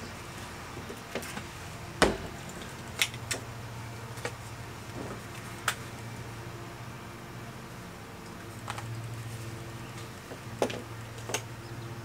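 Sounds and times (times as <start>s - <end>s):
dull thump: 2.0s - 2.4s.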